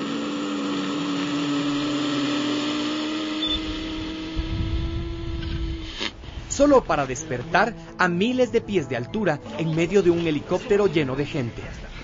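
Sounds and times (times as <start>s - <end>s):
hiss: 0.0s - 6.6s
helicopter turbine whining: 0.0s - 8.8s.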